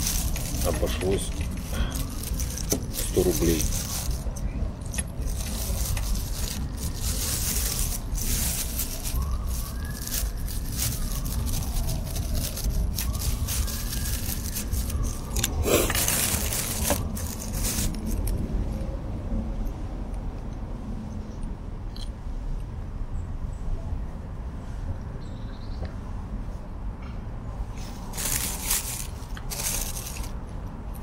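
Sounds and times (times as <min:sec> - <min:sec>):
plastic bag crinkling: 0:00.0 - 0:18.4, 0:28.0 - 0:30.4
steady low rumble: 0:00.0 - 0:21.7.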